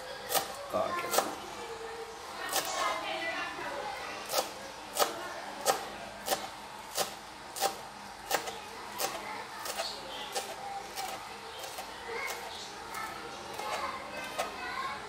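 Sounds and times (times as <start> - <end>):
knife chopping on cutting board: 4.3 - 11.8.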